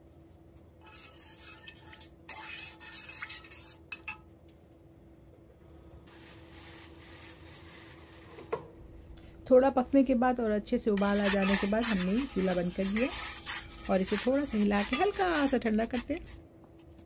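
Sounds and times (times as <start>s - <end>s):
metal spoon scraping a pot: 0.8s - 4.2s, 11.0s - 16.4s.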